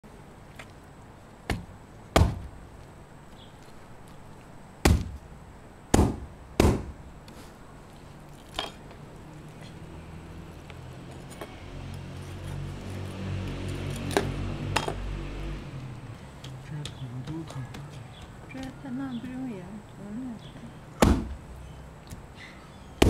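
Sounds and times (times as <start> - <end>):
hatchet chopping meat: 4.9 - 5.2, 21.0 - 21.3.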